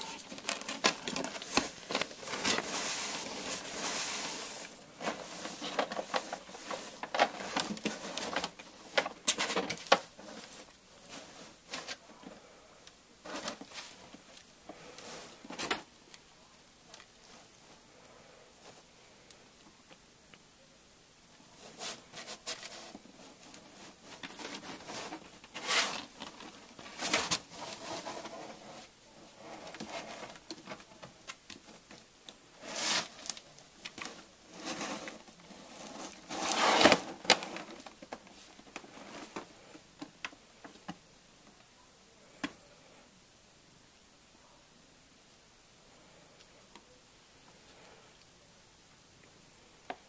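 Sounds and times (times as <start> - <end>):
cardboard boxes crinkling and scraping: 0.0 - 12.4, 13.2 - 15.9, 21.6 - 32.0, 32.6 - 39.7.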